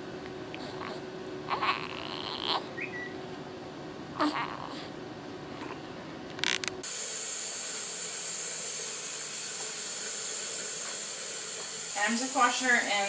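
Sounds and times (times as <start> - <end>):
newborn baby crying: 1.5 - 2.7, 4.2 - 4.8
loud hiss: 6.8 - 13.0.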